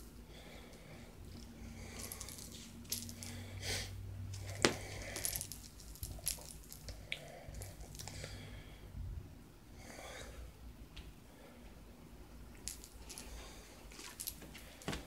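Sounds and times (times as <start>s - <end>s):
toy rattling and rustling: 1.3s - 3.5s, 4.3s - 8.2s, 12.6s - 15.0s.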